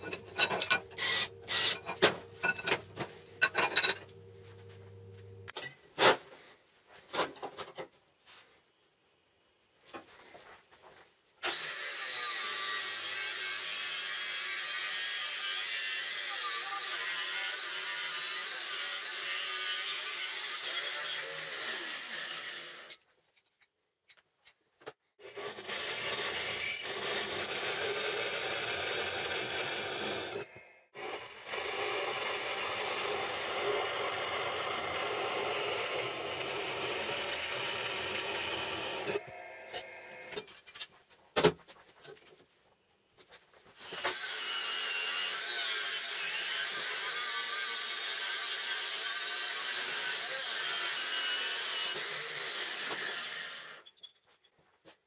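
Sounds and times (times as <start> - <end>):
drill press drilling steel: 0.0 - 2.7, 25.2 - 40.4
angle grinder cutting steel: 0.0 - 4.2, 11.4 - 23.0, 25.2 - 40.5, 43.8 - 53.9.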